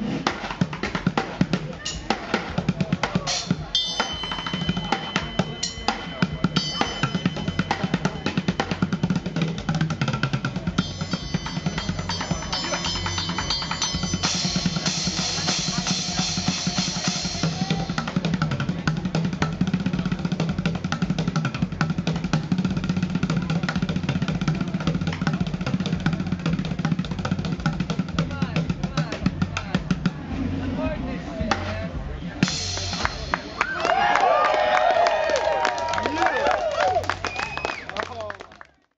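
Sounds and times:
cymbal hits: 3.4s - 9.3s, 10.7s - 18.2s.

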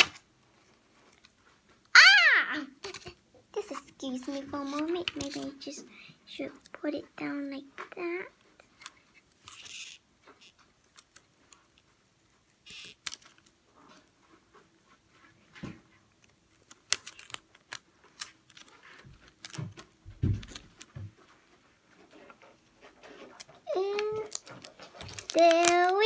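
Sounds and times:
paper rustling: 22.0s - 26.0s.

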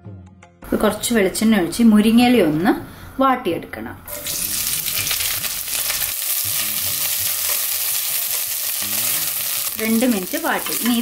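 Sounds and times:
leaves sizzling in hot oil: 4.1s - 11.0s.

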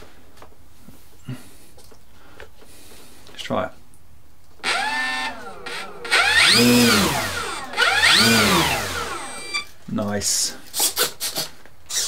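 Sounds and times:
electric motor and propeller whine: 4.6s - 9.7s.

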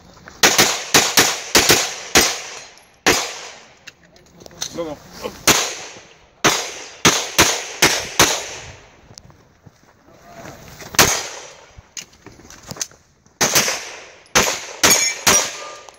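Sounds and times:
pistol shots: 0.4s - 3.7s, 5.4s - 8.6s, 11.0s - 11.6s, 13.4s - 15.9s.

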